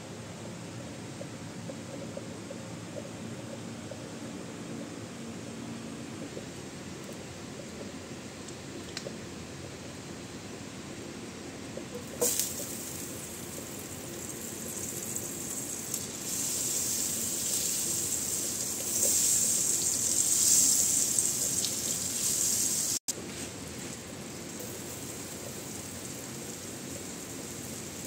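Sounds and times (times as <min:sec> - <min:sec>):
butter sizzling in frying pan: 0:12.0 - 0:23.0, 0:23.6 - 0:28.0.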